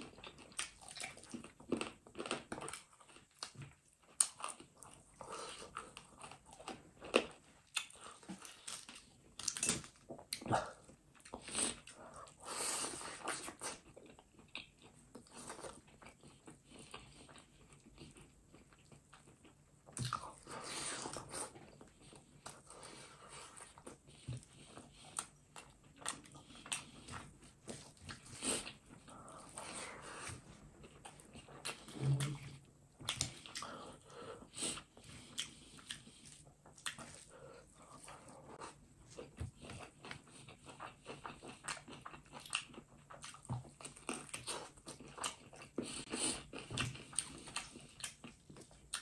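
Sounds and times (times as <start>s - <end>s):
wet chewing and biting: 12.9s - 32.4s, 33.0s - 49.0s.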